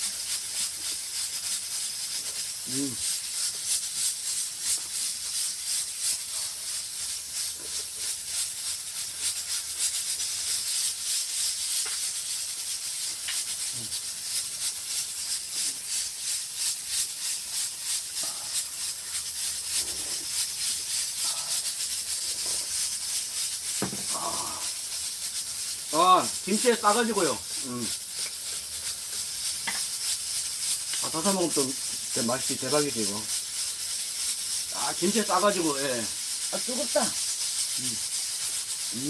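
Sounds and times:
steady hiss with crackling: 0.0 - 39.0
people chewing: 18.2 - 18.6, 19.8 - 22.7, 23.9 - 24.7.

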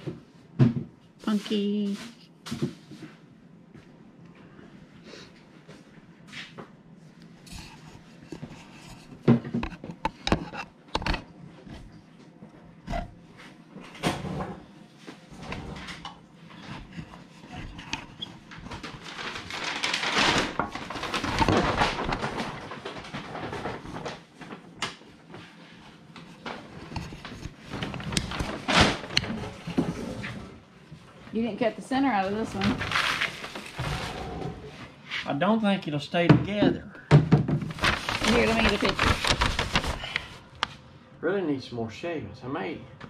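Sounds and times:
objects knocking and clattering: 8.3 - 11.9, 13.8 - 25.0, 26.2 - 30.6, 36.3 - 40.0
paper bag rustling: 16.8 - 24.8, 26.4 - 30.4, 32.1 - 34.4, 37.6 - 40.4.

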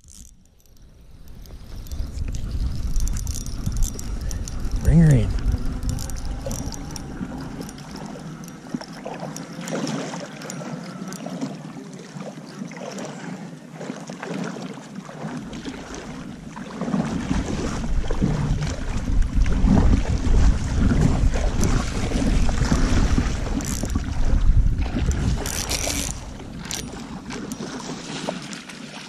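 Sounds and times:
wind rumbling on microphone: 0.0 - 8.9, 15.6 - 28.3
fishing reel cranking: 0.0 - 11.4, 23.3 - 24.2, 25.1 - 27.6
water splashing and sloshing: 0.0 - 29.0.

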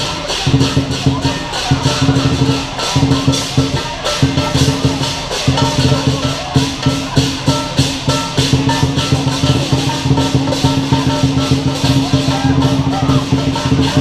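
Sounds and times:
clashing cymbals: 0.0 - 14.0
large drum beating fast: 0.0 - 14.0
ringing gong: 0.0 - 14.0.

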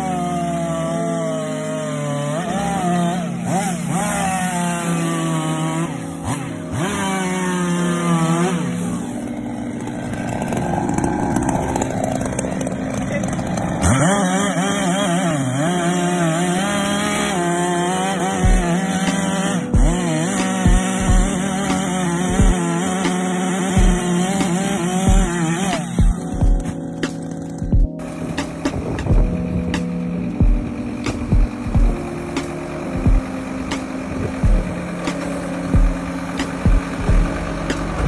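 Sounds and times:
background music: 0.0 - 38.0
chainsaw cutting wood: 0.0 - 38.0.

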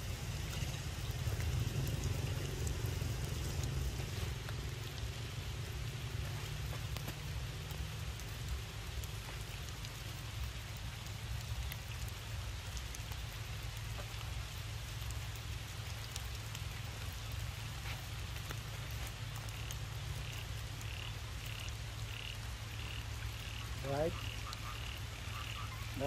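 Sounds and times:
low rumble: 0.0 - 9.2
steady rain on standing water: 0.0 - 26.0.

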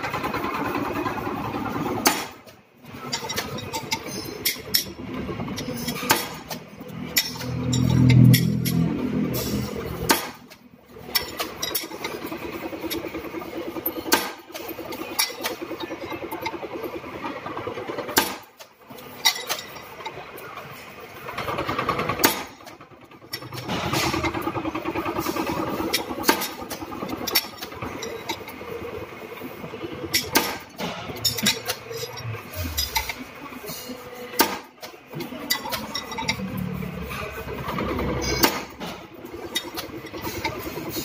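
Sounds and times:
metal clanks: 2.0 - 16.7, 29.4 - 33.7, 34.4 - 41.0
hydraulic pump rattling drone: 21.0 - 33.7, 35.1 - 41.0.

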